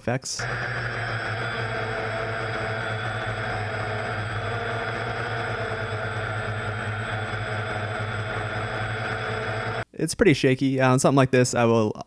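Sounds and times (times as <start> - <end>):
drone motors humming: 0.4 - 9.8.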